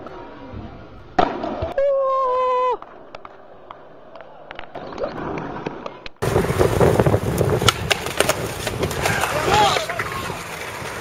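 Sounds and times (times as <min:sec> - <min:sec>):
skateboard clacks: 0:02.8 - 0:11.0
skateboard wheels rolling on stone: 0:04.6 - 0:11.0
skateboard rolling on wet street: 0:04.8 - 0:11.0.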